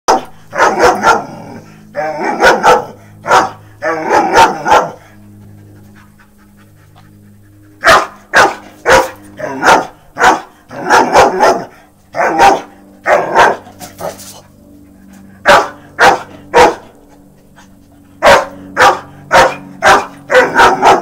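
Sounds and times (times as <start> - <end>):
dog barking: 0.1 - 1.4, 2.2 - 5.0, 7.8 - 14.2, 15.4 - 16.9, 18.2 - 21.0.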